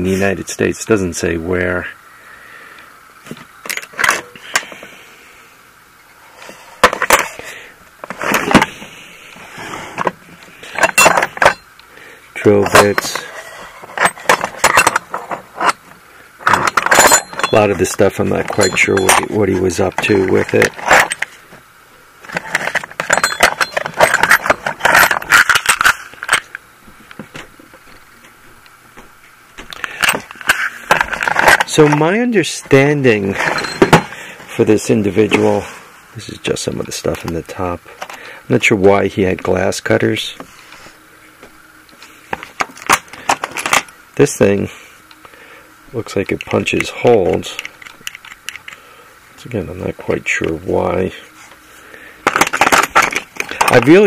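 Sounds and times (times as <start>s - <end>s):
metal tools clinking in drawer: 10.7s - 11.7s, 12.5s - 15.8s, 16.4s - 21.3s, 22.3s - 26.4s, 33.3s - 34.2s, 52.3s - 54.0s.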